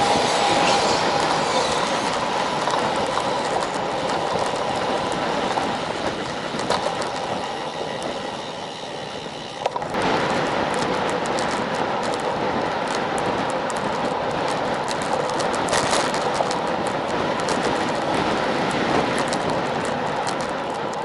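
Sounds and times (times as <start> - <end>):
bicycle tyres on asphalt: 0.0 - 21.0
wind rush: 0.0 - 21.0
small rattling clicks: 0.8 - 10.0.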